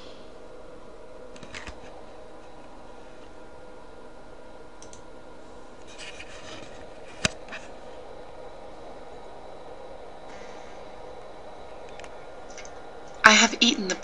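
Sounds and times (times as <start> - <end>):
steady hum: 0.0 - 14.0
computer mouse clicks: 4.8 - 5.0.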